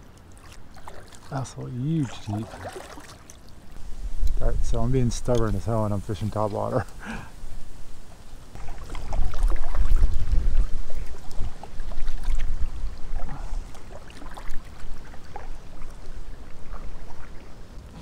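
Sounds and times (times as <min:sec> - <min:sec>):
paddle splashing and dripping: 0:00.0 - 0:07.2, 0:08.1 - 0:18.0
wind rumbling on microphone: 0:03.6 - 0:18.0.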